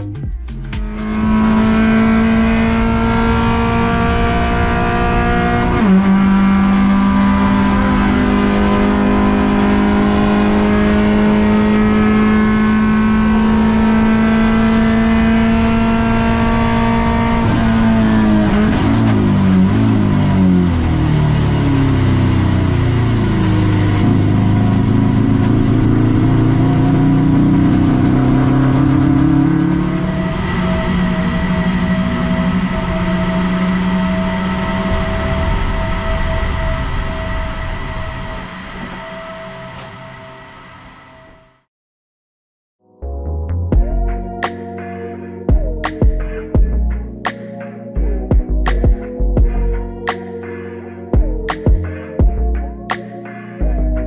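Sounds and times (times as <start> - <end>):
race car engine revving: 0.0 - 41.4.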